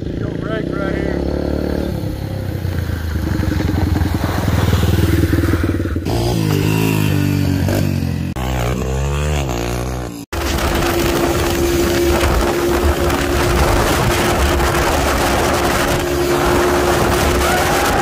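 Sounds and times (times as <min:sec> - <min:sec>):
dirt bike engines revving: 0:00.0 - 0:18.0.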